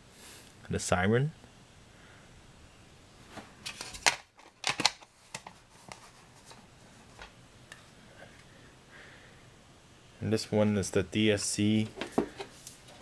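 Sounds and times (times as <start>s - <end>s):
plastic parts clicking and rustling: 3.6s - 6.0s.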